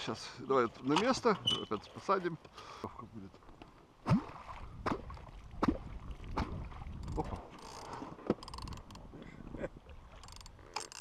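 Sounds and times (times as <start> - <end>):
short squeaks: 1.4 - 1.9
fishing reel clicking: 7.6 - 9.0, 10.2 - 11.0.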